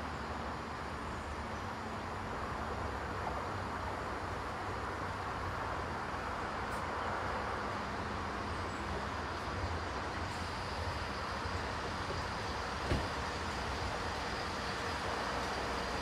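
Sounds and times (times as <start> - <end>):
low diesel hum: 0.0 - 16.0
wheel-on-rail rumble: 0.2 - 16.0
short thump: 12.8 - 13.2.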